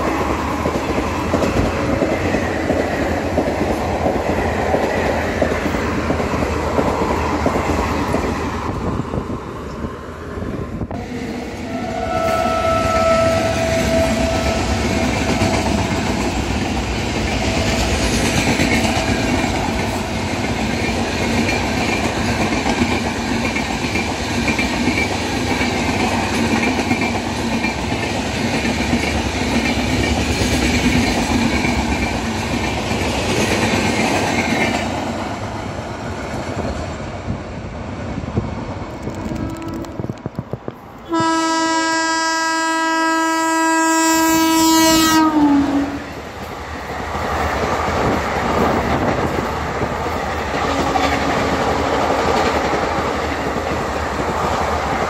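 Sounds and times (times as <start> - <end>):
train coaches rushing past: 0.0 - 42.9, 44.8 - 55.0
locomotive horn blast: 11.0 - 15.5, 41.0 - 46.0.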